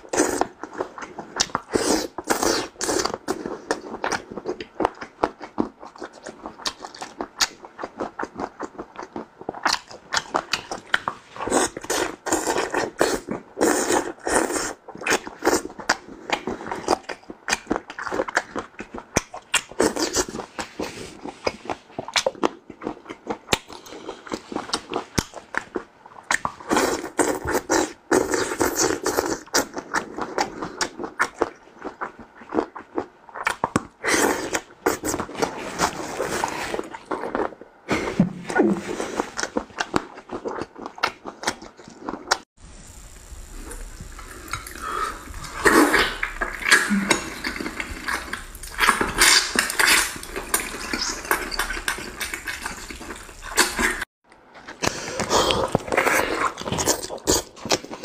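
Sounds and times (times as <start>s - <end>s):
wet chewing and sucking: 0.0s - 38.2s, 38.8s - 58.0s
low hum: 42.6s - 54.0s.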